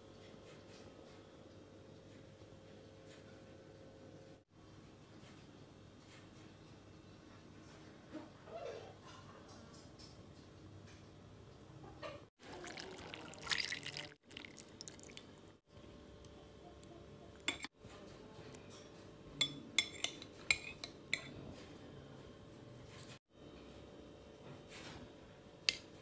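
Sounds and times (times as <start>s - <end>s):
liquid splashing: 12.4s - 15.4s
utensil clinking on ceramic bowl: 17.4s - 17.7s, 18.7s - 21.3s.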